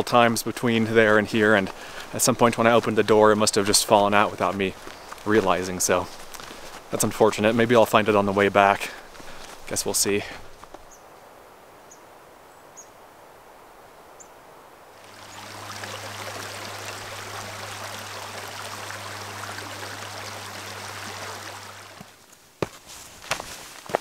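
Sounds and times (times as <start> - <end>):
creek rushing over rocks: 0.0 - 10.8, 14.9 - 24.0
footsteps on dirt: 0.2 - 10.9, 21.9 - 24.0.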